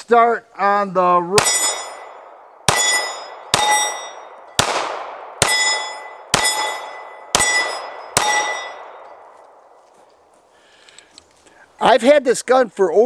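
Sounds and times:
steel plate target ringing: 1.4 - 4.8, 5.4 - 9.4
pistol shots: 1.4 - 9.0.

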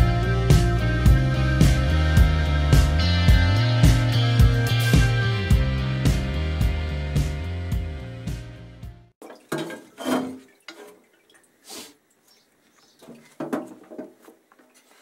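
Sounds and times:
background music: 0.0 - 9.1
metal clunking on a tub: 9.2 - 11.1, 13.0 - 14.8.

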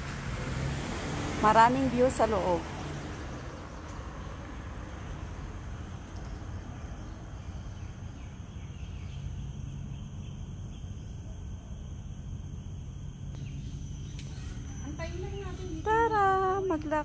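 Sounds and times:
insects chirping shrilly: 4.1 - 17.0.

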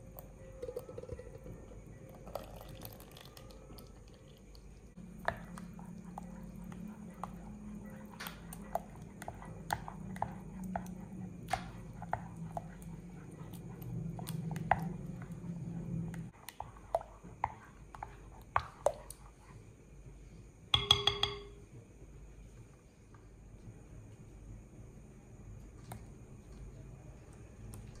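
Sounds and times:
spoon clattering on glass: 20.8 - 21.6
spoon knocking against glass bowl: 20.8 - 21.6.

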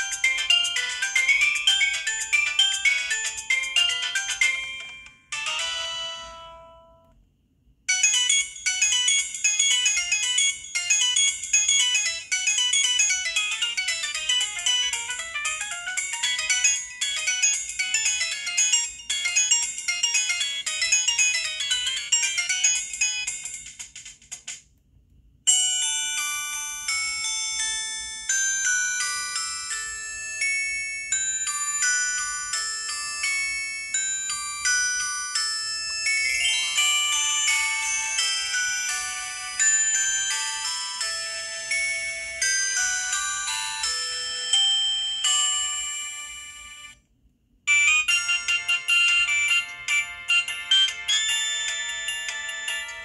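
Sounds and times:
phone ringtone melodies: 0.0 - 7.0, 7.9 - 24.0, 25.5 - 47.0, 47.7 - 53.0.

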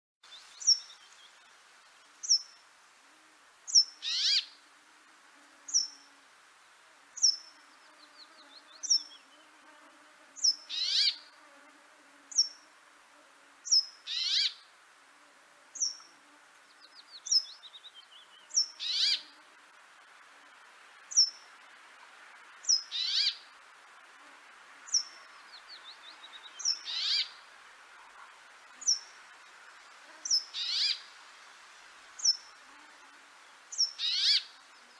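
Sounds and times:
songbirds calling: 0.2 - 2.7, 3.7 - 4.6, 5.7 - 6.2, 7.2 - 9.8, 10.4 - 11.4, 12.3 - 12.7, 13.7 - 14.7, 15.8 - 19.4, 21.1 - 21.6, 22.6 - 23.6, 24.8 - 31.2, 32.2 - 34.9
bird trills: 3.7 - 4.5, 10.4 - 11.2, 13.7 - 14.6, 22.7 - 23.4, 26.6 - 27.4, 33.8 - 34.5.

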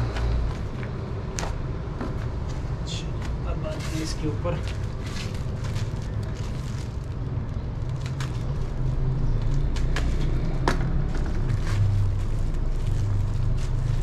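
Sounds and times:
steady low rumble: 0.0 - 14.0
paper packet crackling: 3.7 - 9.9, 11.2 - 14.0.

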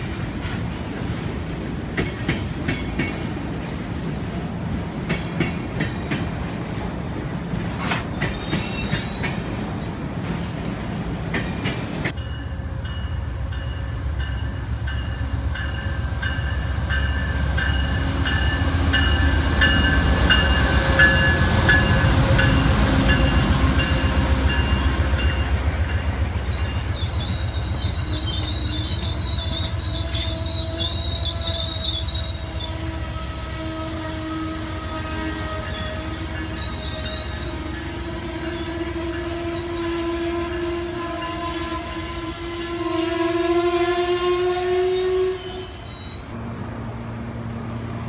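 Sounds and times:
diesel locomotive rumbling past: 0.0 - 48.0
passenger coaches rolling by: 0.0 - 48.0
high wheel squeal: 8.3 - 10.7, 24.7 - 46.4
train bell ringing: 12.1 - 33.2, 34.5 - 46.4.

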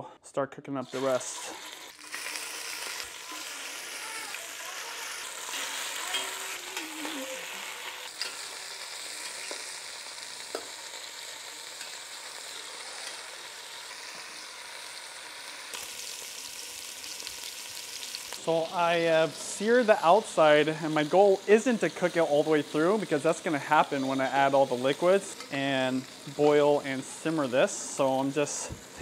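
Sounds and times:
chicken sizzling in hot fat: 0.8 - 29.0
metal tongs clicking on pot: 8.1 - 8.4.

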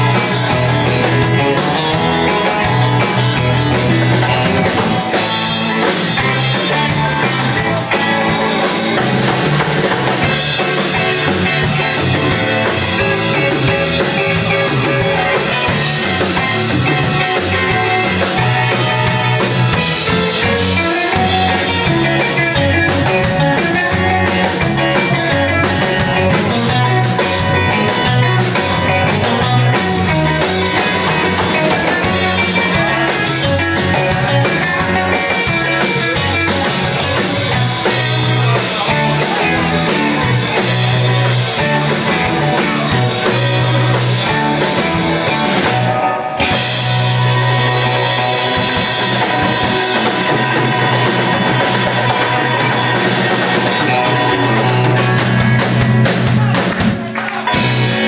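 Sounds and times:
bass line: 0.0 - 58.0
drum kit: 0.0 - 58.0
electric guitars: 0.0 - 58.0.

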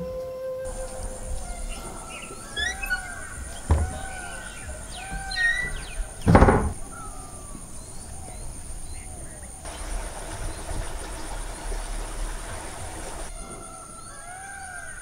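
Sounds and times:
birds chirping: 0.0 - 15.0
thud: 0.8 - 7.0.

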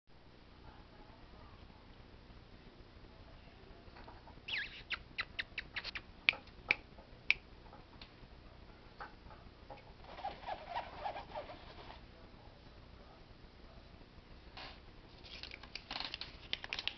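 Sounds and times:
soft scratchy rustles: 9.8 - 12.8, 14.6 - 16.9.

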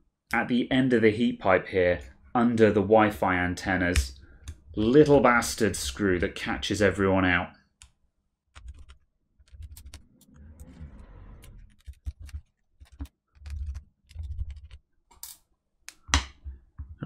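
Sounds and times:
faint scraping: 9.8 - 14.5.

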